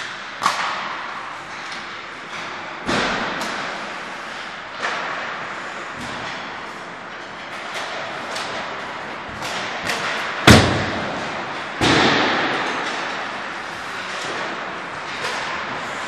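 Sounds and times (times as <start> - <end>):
puck bangs echoing: 0.0 - 4.0, 9.3 - 13.5
hockey sticks clacking: 0.0 - 16.0.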